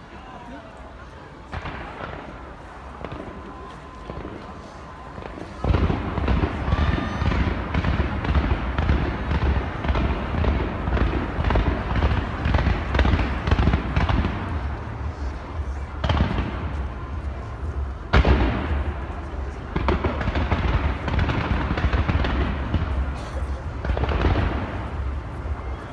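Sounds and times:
firework bursts and crackles: 0.1 - 25.9
deep firework booms: 5.2 - 25.7.

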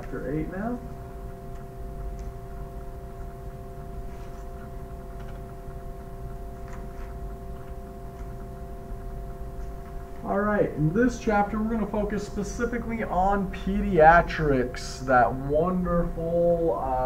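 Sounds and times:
steady hum of held tones: 0.0 - 17.0.

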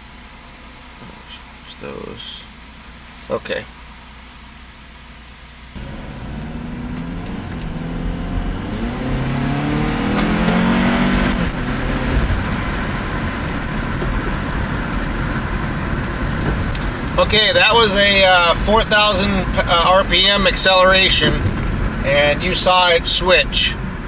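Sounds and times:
car engine accelerating: 0.0 - 24.0.

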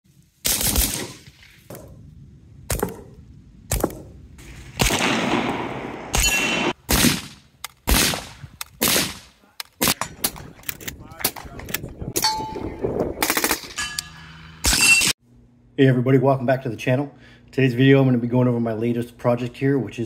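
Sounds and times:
suppressed rifle shots: 0.4 - 1.3, 4.8 - 10.5.

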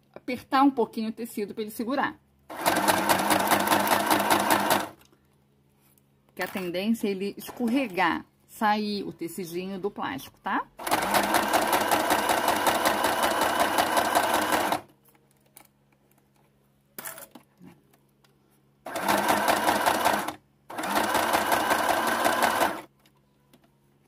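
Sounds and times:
sewing machine stitching: 2.5 - 5.0, 10.8 - 14.9, 18.9 - 22.9.

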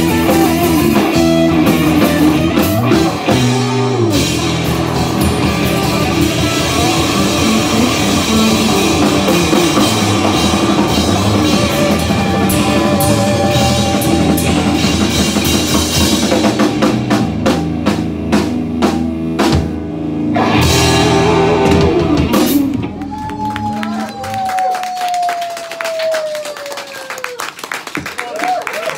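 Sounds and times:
rapid drum hits: 0.0 - 19.9
blues-rock band playing: 0.0 - 24.6.

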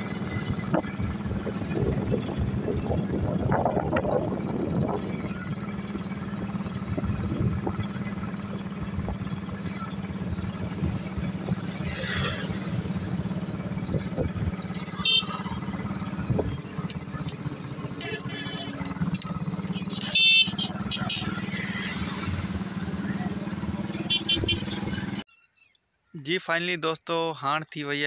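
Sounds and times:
motorcycle engine running: 0.0 - 25.2
pickup truck engine running: 0.0 - 25.2.

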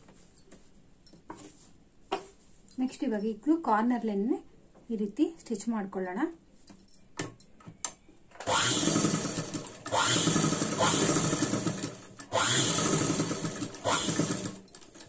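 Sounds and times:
sewing machine stitching: 8.4 - 15.0.

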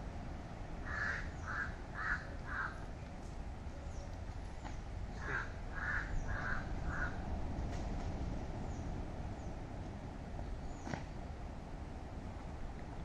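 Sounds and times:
crow cawing: 0.8 - 2.8, 5.2 - 7.2.

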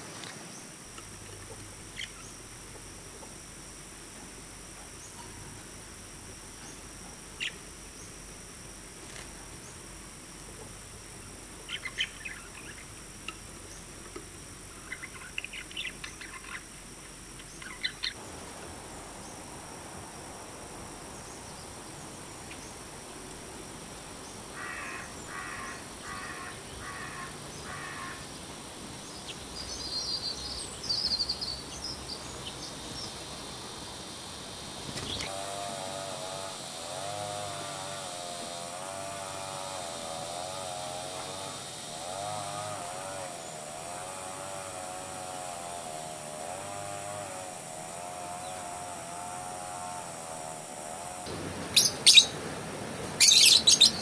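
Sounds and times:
starling calls: 0.0 - 3.5, 6.3 - 8.3, 10.6 - 18.6, 24.3 - 52.4, 53.1 - 54.0
steady high hiss: 0.0 - 54.0
budgerigars chirping: 11.7 - 13.5, 14.8 - 16.7, 17.4 - 18.2, 51.8 - 52.3, 53.2 - 54.0.

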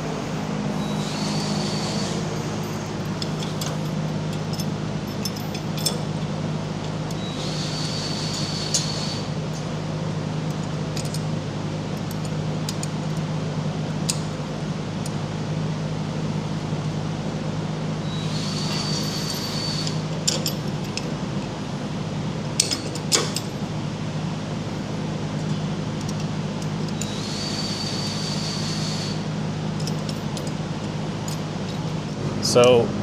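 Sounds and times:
steady background hum: 0.0 - 33.0
steel clamp clinking: 2.6 - 6.1, 19.1 - 21.0.

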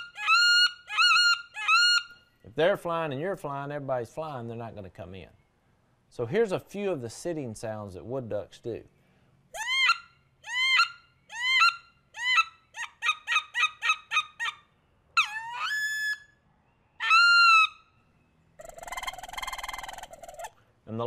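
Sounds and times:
buzzy trill from duck call: 0.0 - 2.1, 17.0 - 17.7, 18.6 - 20.5
duck call squeals: 0.0 - 2.2, 9.5 - 14.6, 15.2 - 16.3, 17.0 - 17.9, 18.6 - 20.6.

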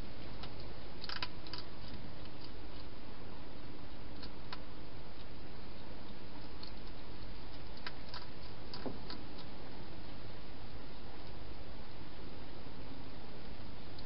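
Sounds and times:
hedgehog chewing clicks: 0.4 - 2.9, 4.2 - 5.4, 6.1 - 9.6.

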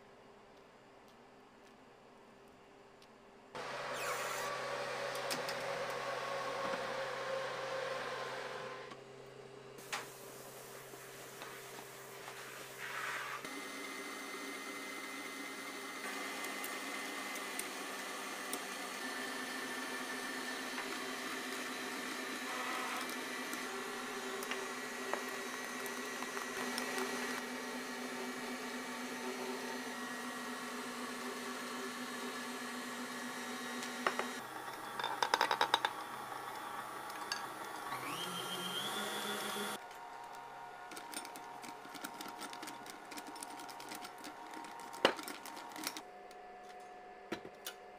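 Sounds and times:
stand mixer motor humming: 13.5 - 35.0, 36.0 - 39.8.

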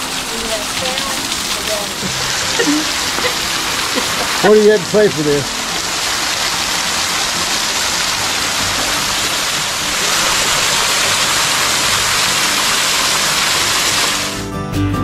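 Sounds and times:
waterfall rushing: 0.0 - 14.4
acoustic guitar music: 0.0 - 15.0.

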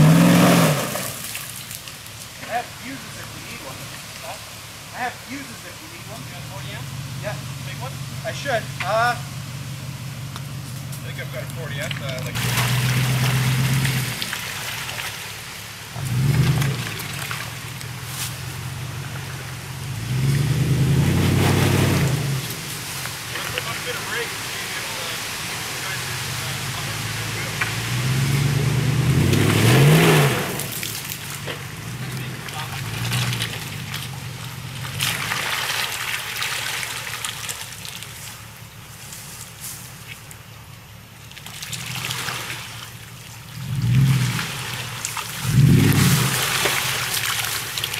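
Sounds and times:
engine revving: 0.0 - 1.3, 6.2 - 14.4, 15.9 - 35.5, 43.5 - 47.5
tyres churning wet mud: 0.0 - 9.3, 11.0 - 47.9
muddy water splashing: 0.1 - 6.3, 11.0 - 38.9, 40.0 - 47.9.

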